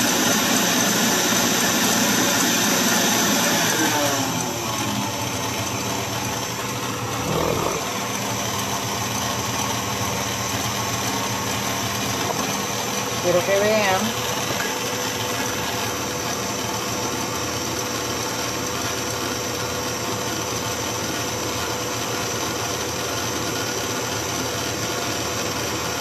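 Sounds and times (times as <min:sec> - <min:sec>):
stand mixer motor humming: 0:00.0 - 0:26.0.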